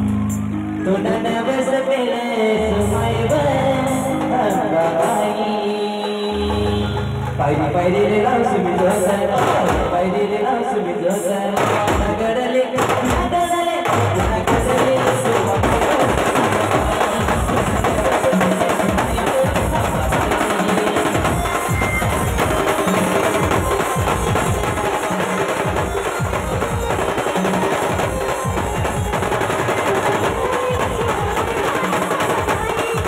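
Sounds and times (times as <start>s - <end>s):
live band music: 0.0s - 33.0s
bass drum: 12.8s - 31.7s
snare drum rolls: 12.8s - 33.0s.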